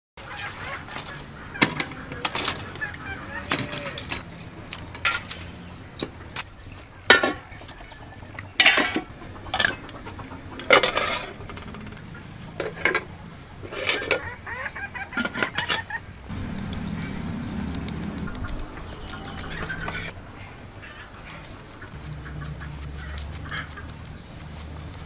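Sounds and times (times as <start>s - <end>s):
utensils clinking against metal bowls: 3.4s - 4.2s, 8.6s - 9.8s
steady low hum: 16.2s - 21.2s, 21.8s - 25.0s.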